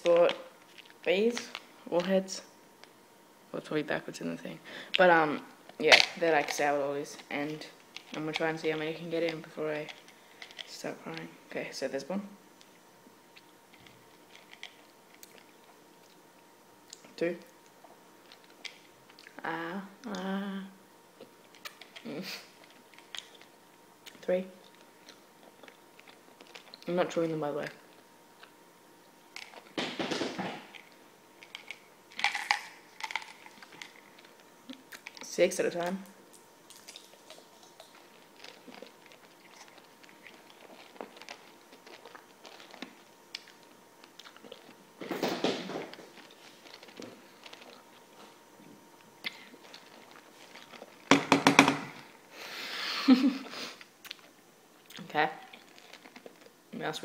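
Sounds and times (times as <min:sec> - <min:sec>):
plastic wrappers crinkling: 0:29.4 - 0:44.8, 0:45.4 - 0:48.4, 0:49.2 - 0:51.1, 0:55.5 - 0:56.6.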